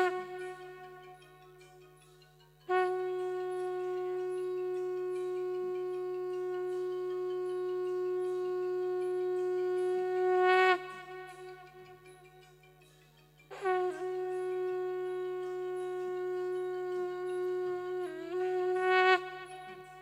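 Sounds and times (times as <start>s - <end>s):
long horn note: 13.5s - 20.0s.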